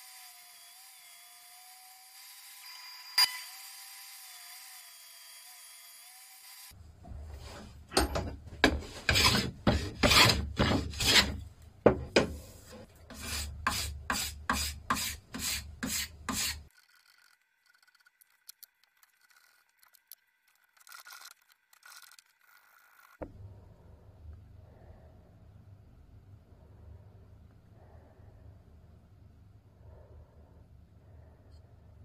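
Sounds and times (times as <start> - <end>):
hand tool rasping on wood: 8.6 - 11.4, 12.2 - 16.7
light scrapes on wood: 8.6 - 11.4.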